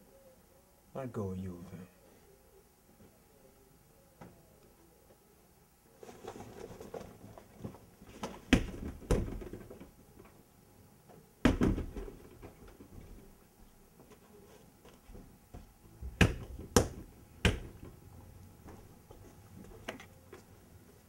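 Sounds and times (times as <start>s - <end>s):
shuffling and rustling of clothes: 5.9s - 10.4s, 11.9s - 16.2s, 17.8s - 21.0s.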